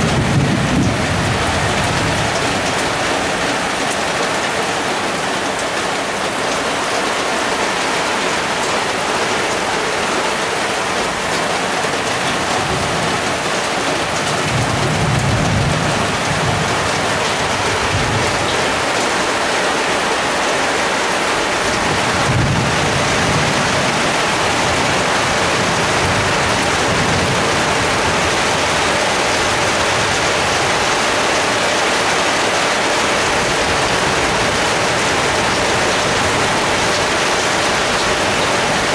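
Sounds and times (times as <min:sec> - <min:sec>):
thunder rumbling: 0:00.0 - 0:03.8, 0:12.1 - 0:18.9, 0:21.5 - 0:30.9
heavy rain pouring: 0:00.0 - 0:38.9.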